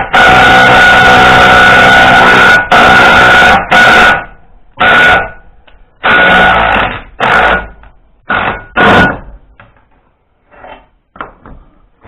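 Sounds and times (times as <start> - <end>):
power tool whining: 0.0 - 5.4, 6.0 - 9.2.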